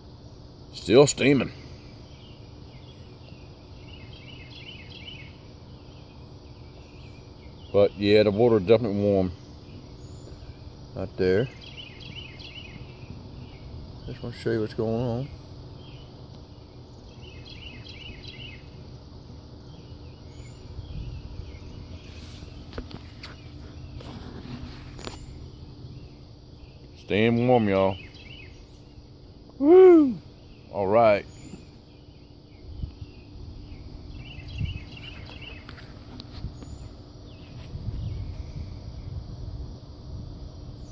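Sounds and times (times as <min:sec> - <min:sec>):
faint hum: 0:00.0 - 0:40.9
insects chirping: 0:00.0 - 0:40.9
steady low rumble: 0:12.6 - 0:17.7, 0:18.5 - 0:29.6, 0:30.2 - 0:40.8.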